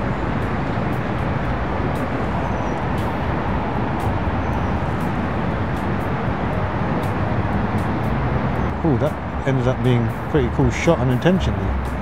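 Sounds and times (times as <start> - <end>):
outdoor background rumble: 0.0 - 12.0.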